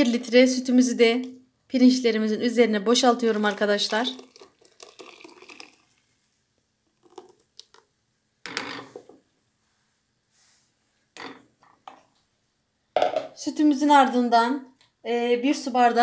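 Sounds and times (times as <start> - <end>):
milk pouring and splashing: 3.2 - 6.2, 6.8 - 7.9.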